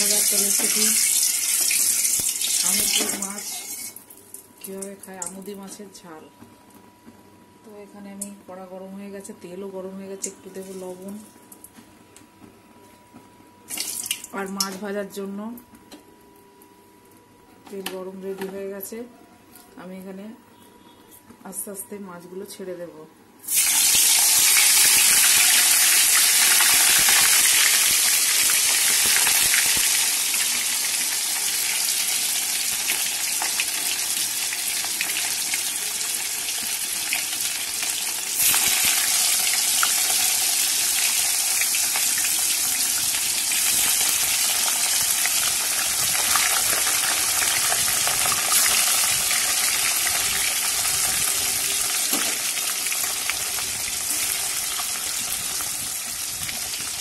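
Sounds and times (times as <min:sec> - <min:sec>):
fish sizzling in hot oil: 0:00.0 - 0:03.9, 0:23.4 - 0:57.0.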